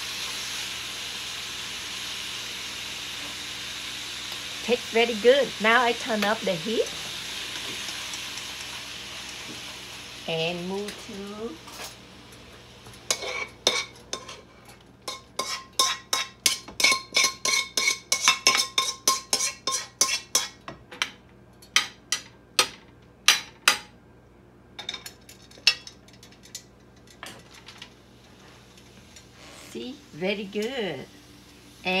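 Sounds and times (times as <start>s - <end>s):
utensil scraping and tapping wok: 6.1s - 9.7s, 12.8s - 23.8s.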